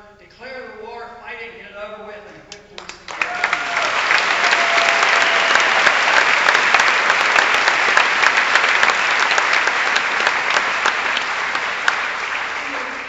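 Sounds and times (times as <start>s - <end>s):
large audience applauding: 2.8s - 13.0s.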